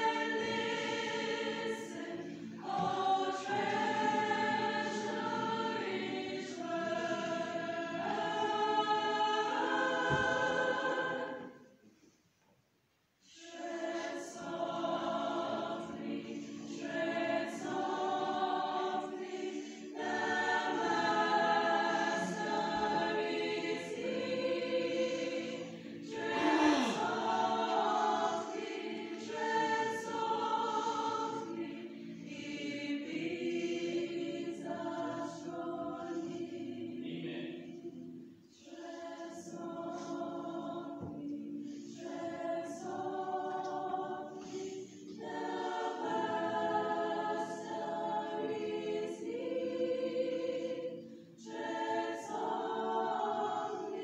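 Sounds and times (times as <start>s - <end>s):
choir singing: 0.0s - 12.0s, 13.2s - 54.0s.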